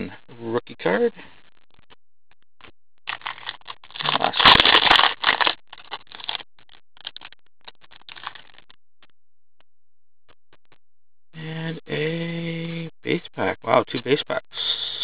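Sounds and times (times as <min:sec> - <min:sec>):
plastic wrapper tearing and crinkling: 0:03.1 - 0:08.7.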